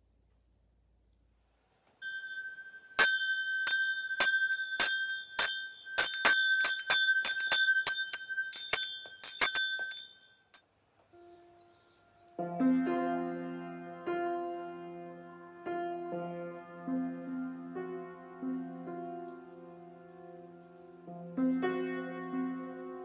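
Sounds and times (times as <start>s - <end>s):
small bell ringing: 2.0s - 10.6s.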